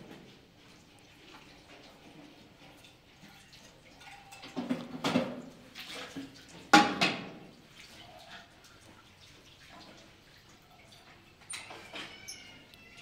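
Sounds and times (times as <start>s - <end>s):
water splashing in sink: 0.0s - 13.0s
dishes clattering: 4.1s - 5.5s.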